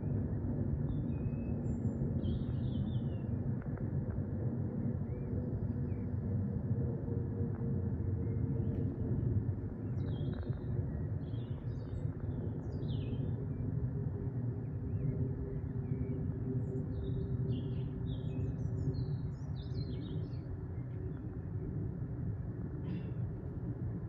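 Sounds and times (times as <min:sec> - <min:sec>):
small birds chirping: 0:09.8 - 0:13.6, 0:16.8 - 0:21.3.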